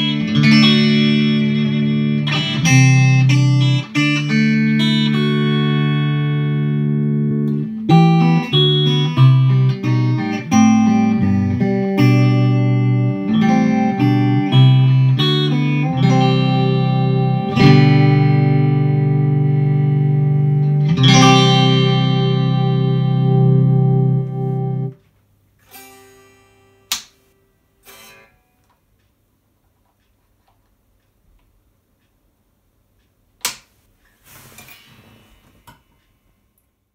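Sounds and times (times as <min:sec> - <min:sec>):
electric guitar chords ringing: 0:00.0 - 0:25.0, 0:25.7 - 0:28.6.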